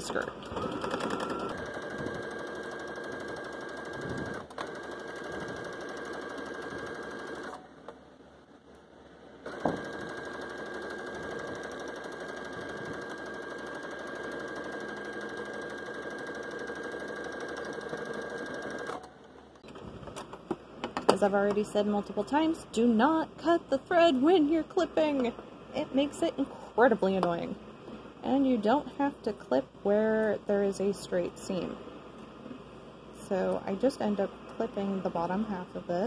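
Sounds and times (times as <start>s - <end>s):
sewing machine motor whine: 0.4s - 7.6s, 9.5s - 19.1s.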